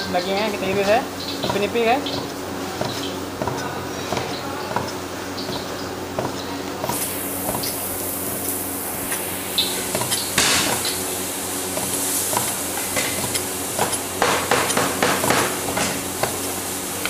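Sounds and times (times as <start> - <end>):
cleaver chopping on wooden board: 0.7 - 7.7, 11.8 - 16.4.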